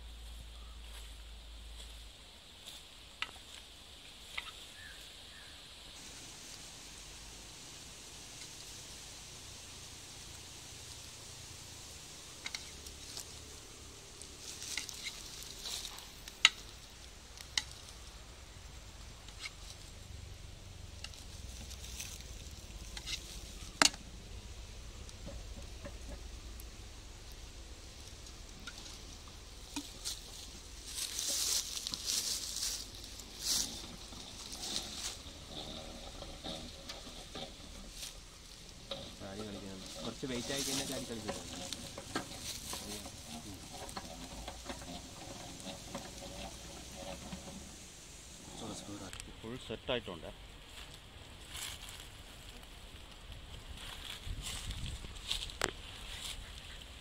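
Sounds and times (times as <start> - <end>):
knife scraping wax cappings: 12.4 - 18.2, 28.1 - 49.2.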